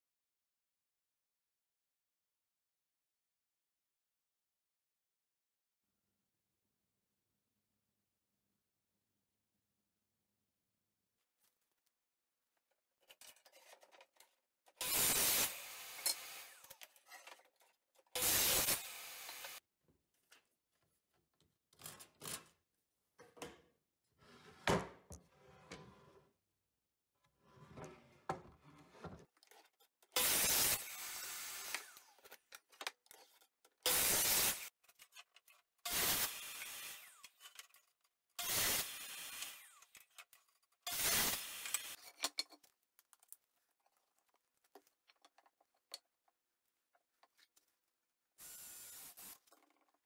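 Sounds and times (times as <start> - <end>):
miter saw cutting wood: 35.9 - 37.4, 38.4 - 40.0.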